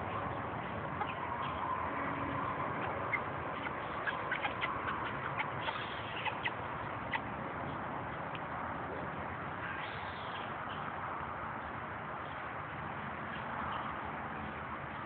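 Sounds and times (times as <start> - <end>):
hens peeping and chirping: 0.0 - 9.1.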